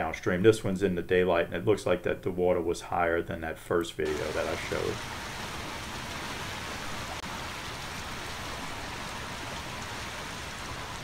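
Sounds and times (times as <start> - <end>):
rushing creek water: 4.0 - 11.0.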